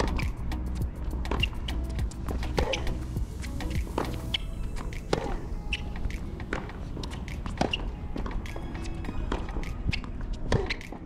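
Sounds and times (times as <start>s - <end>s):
ball bouncing on hard court: 1.3s - 1.7s, 3.8s - 11.0s
rackets striking tennis ball: 1.3s - 3.0s, 3.6s - 11.0s.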